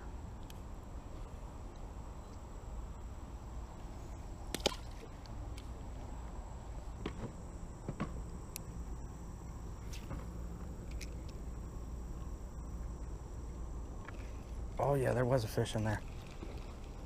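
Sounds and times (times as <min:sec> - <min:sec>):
low steady rumble: 0:00.0 - 0:17.0.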